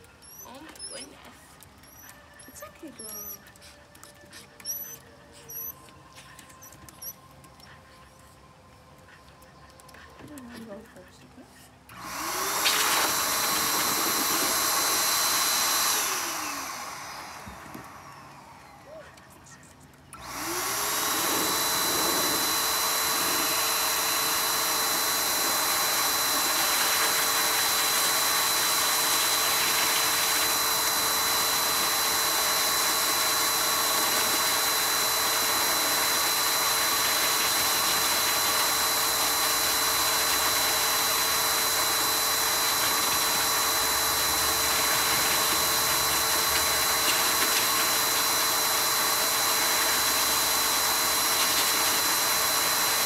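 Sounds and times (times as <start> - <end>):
blower dryer rushing air: 11.8 - 18.8, 20.1 - 53.0
high motor whine: 20.2 - 53.0.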